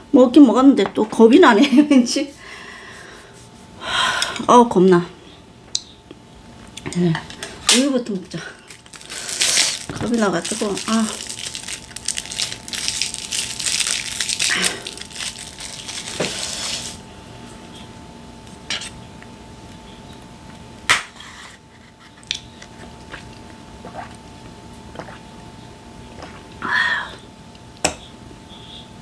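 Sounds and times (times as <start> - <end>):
plastic wrapper crinkling: 7.7 - 17.0.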